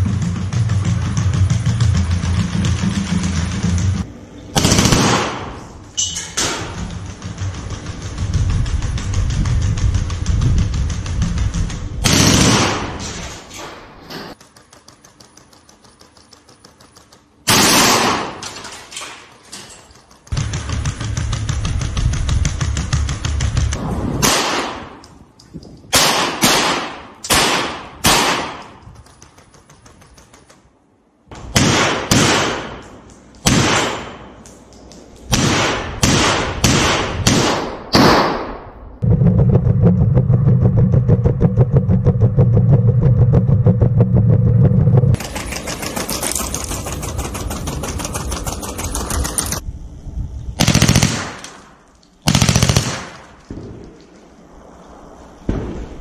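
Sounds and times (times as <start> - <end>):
rapid automatic gunfire: 0.0 - 5.6, 7.0 - 13.0, 14.3 - 18.4, 20.2 - 25.0, 35.3 - 38.4, 45.2 - 49.6, 50.6 - 51.6, 52.2 - 53.8
rifle single shots: 25.9 - 28.7, 35.3 - 38.6.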